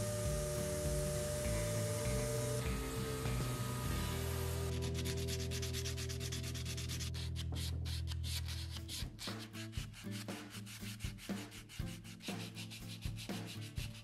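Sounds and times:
steady low hum: 0.0s - 7.7s
sandpaper rubbing on wood: 4.5s - 14.0s.

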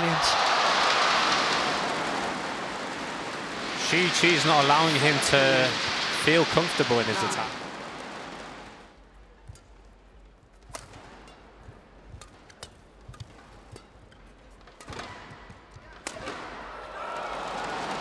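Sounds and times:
crowd noise: 0.0s - 8.4s
rackets striking shuttlecock: 9.4s - 16.6s.

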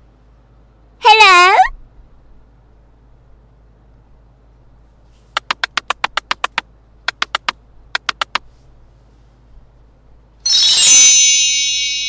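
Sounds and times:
sharp clicks: 5.4s - 8.4s.

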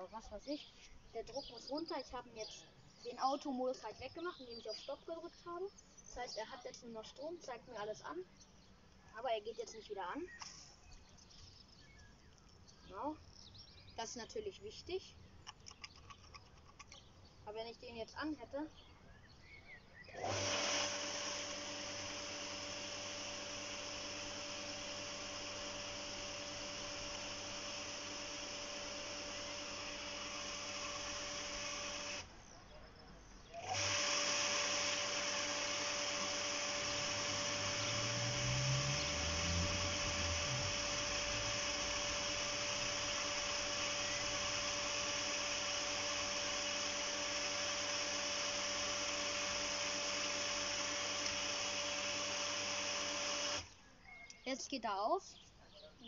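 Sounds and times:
electric pump motor humming: 20.0s - 32.6s, 33.4s - 53.8s.

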